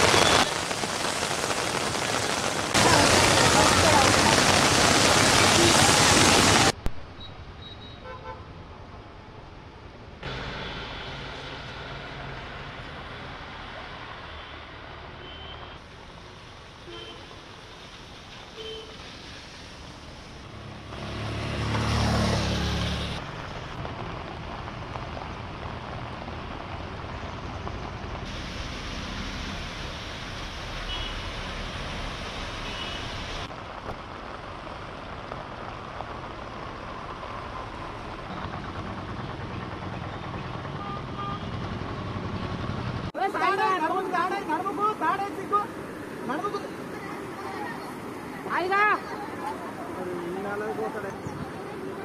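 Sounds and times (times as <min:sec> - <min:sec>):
vehicles driving through floodwater: 0:00.0 - 0:52.0
vehicle passing loudly: 0:20.5 - 0:23.3.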